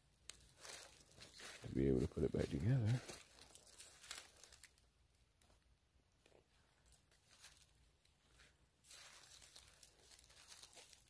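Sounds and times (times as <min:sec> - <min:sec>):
footsteps in dry leaves: 0:00.3 - 0:04.8, 0:07.1 - 0:11.0.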